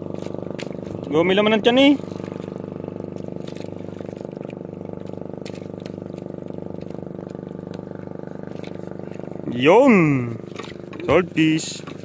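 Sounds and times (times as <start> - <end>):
boat engine pulsing drone: 0.0 - 12.0.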